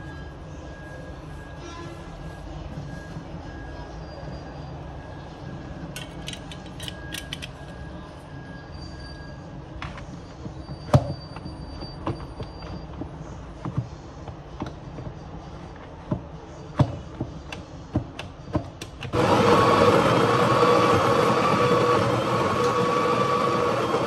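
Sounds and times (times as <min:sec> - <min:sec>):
espresso machine pump buzzing: 0:19.1 - 0:24.0.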